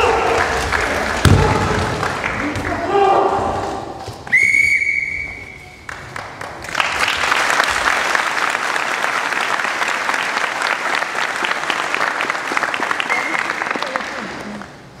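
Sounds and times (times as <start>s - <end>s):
audience applause: 0.0s - 2.8s, 5.6s - 14.9s
long whistle blast: 4.3s - 5.7s.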